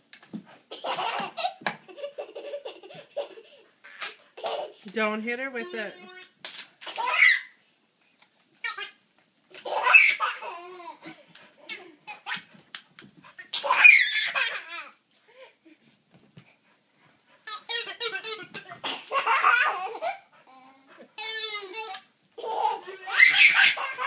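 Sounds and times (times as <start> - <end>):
toddler belly-laughing: 0.7 - 4.8, 9.6 - 12.5, 17.5 - 24.0.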